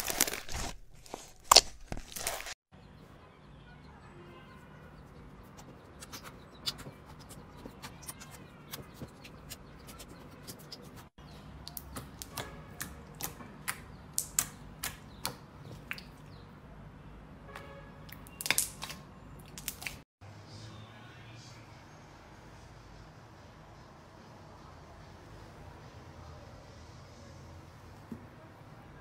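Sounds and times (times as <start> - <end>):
slime squelching: 18.1 - 20.0.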